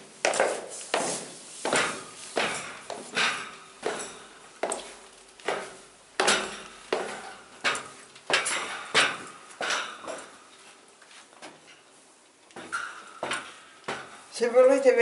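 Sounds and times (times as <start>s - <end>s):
footsteps on stone stairs: 0.0s - 11.7s.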